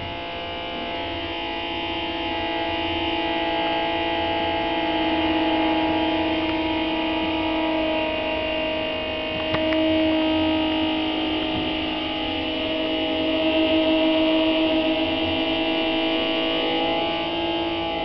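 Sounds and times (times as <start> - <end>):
electric guitar drone: 0.0 - 18.0.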